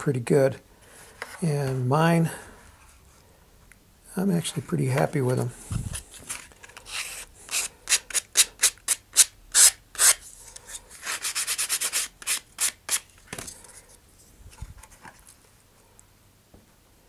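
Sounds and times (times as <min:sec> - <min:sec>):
sandpaper rubbing plastic edge: 0:06.3 - 0:10.3, 0:11.0 - 0:13.1.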